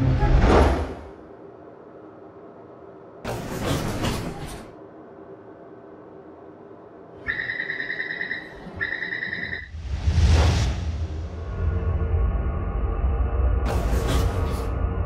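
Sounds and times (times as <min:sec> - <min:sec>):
low hum: 0:00.0 - 0:15.0
train doors sliding open: 0:03.2 - 0:04.8, 0:13.7 - 0:14.7
pulsing door warning beep: 0:07.2 - 0:09.7.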